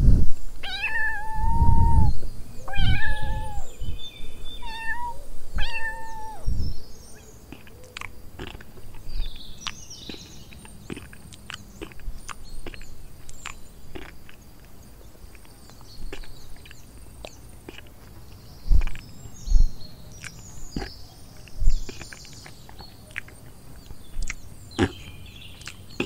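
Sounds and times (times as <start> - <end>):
kitten meowing: 0.6 - 2.1, 2.7 - 3.7, 4.6 - 6.5
horse chewing grass: 20.1 - 25.0.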